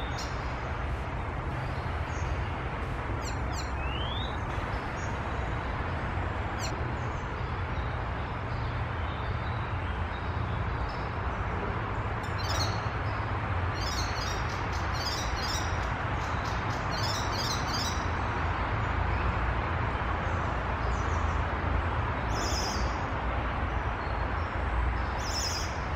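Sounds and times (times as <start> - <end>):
steady background rush: 0.0 - 9.0
warbler singing: 0.0 - 11.4, 12.2 - 18.2, 22.2 - 23.1, 24.0 - 25.9.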